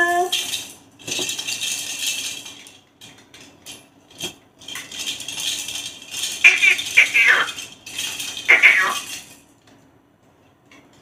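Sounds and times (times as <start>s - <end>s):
plastic baby rattle shaking: 0.3s - 9.5s.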